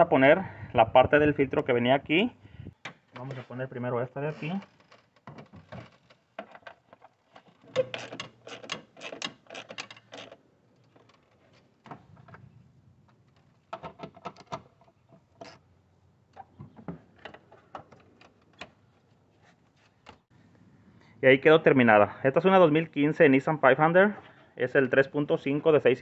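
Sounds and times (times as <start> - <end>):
plastic parts clicking and knocking: 4.7 - 15.6, 16.3 - 19.0.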